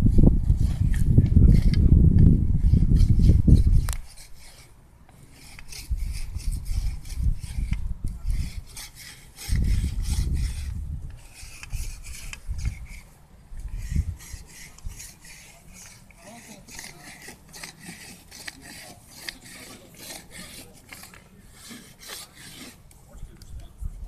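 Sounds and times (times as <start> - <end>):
low rumble on microphone: 0.0 - 4.0
wooden shaft being rasped: 0.4 - 23.0.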